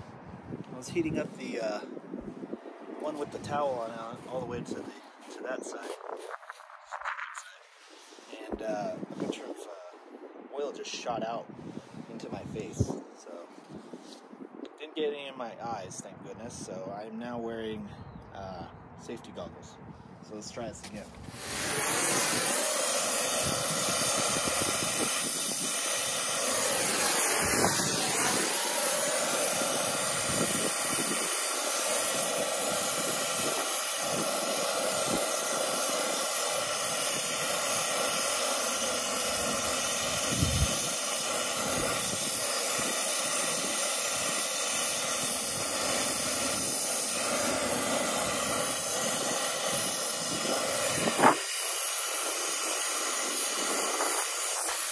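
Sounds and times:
brazing torch hissing: 20.8s - 54.9s.

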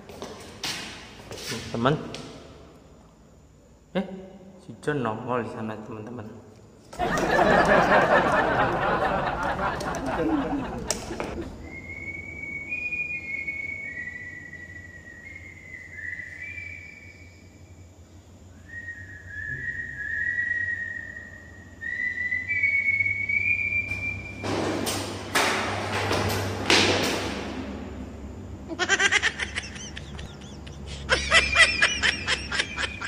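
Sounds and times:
person whistling held notes: 18.6s - 24.4s.

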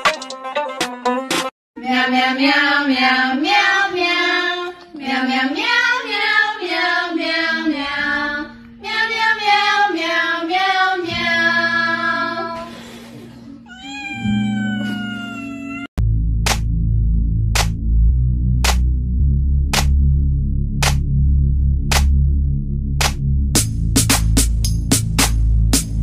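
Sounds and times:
song sung in cat meows: 13.7s - 15.9s
sustained low notes: 16.0s - 24.0s.

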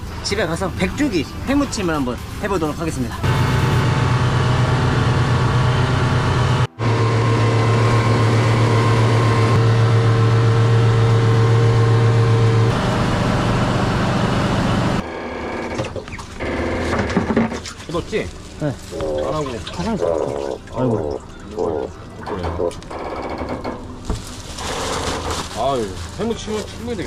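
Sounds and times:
boat engine humming: 2.8s - 15.1s
water sloshing: 17.5s - 22.7s.

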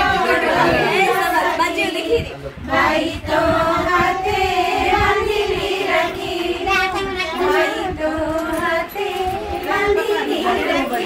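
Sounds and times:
voices chattering: 0.0s - 5.0s, 8.7s - 11.0s
voices singing: 0.0s - 11.0s.

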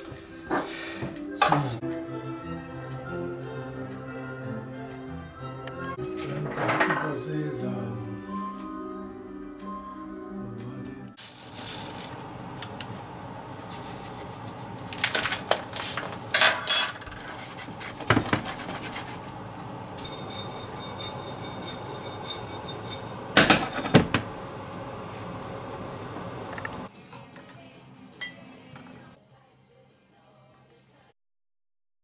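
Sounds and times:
seeds rattling in frying pan: 11.2s - 12.2s, 13.6s - 16.1s
pan scraping: 17.0s - 19.3s, 20.0s - 24.2s
utensil clinking against pan: 20.0s - 23.9s.

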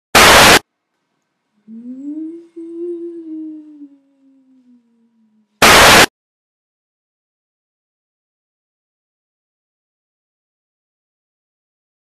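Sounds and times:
tv static: 0.1s - 0.6s, 5.6s - 6.1s
person humming a low note: 1.6s - 5.6s.

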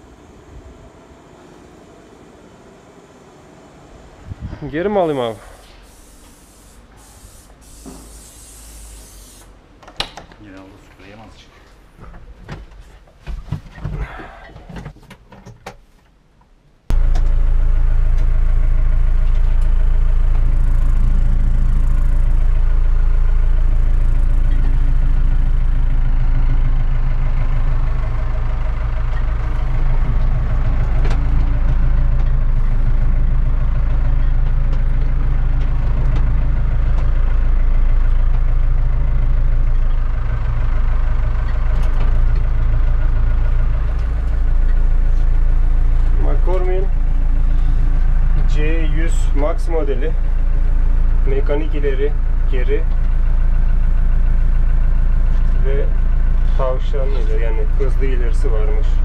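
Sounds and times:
tractor diesel engine idling: 16.9s - 59.0s.

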